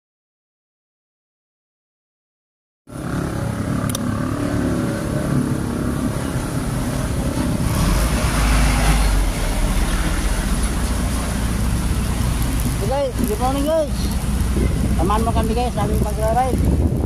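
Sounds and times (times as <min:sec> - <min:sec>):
passing vehicle engines: 0:02.9 - 0:17.0
steady traffic rumble: 0:02.9 - 0:17.0
heavy low rumble: 0:04.8 - 0:17.0.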